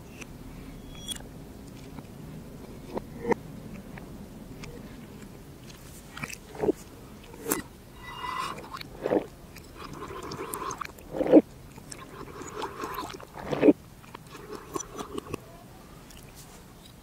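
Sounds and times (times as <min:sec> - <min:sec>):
juice sucked through glass straw: 0:06.6 - 0:15.4.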